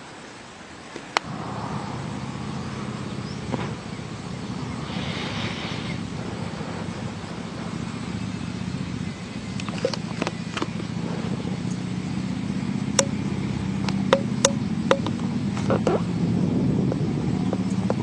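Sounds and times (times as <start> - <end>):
wind turbines whirring hum: 0.0 - 18.0
sharp click: 13.0 - 13.2, 13.8 - 15.7.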